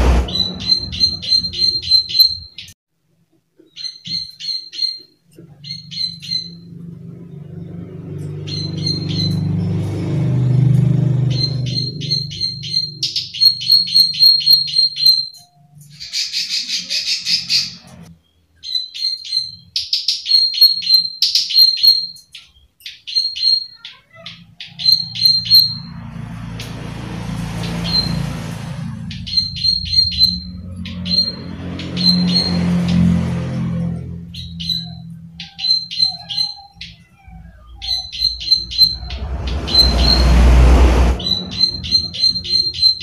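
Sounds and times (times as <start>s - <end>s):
low rumble with hiss: 0.0s - 1.9s, 36.9s - 43.0s.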